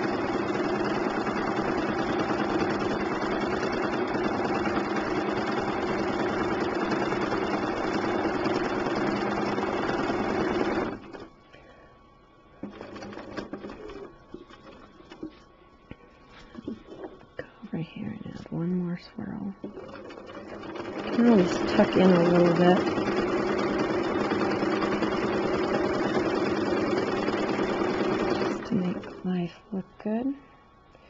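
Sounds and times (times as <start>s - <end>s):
sewing machine running: 0.0s - 11.3s, 12.6s - 14.9s, 19.7s - 29.3s
faint scattered noises: 13.6s - 18.6s.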